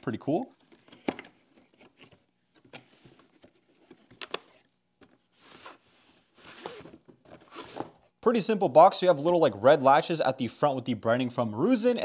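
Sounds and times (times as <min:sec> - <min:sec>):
cardboard sleeve rustling: 0:02.9 - 0:08.0.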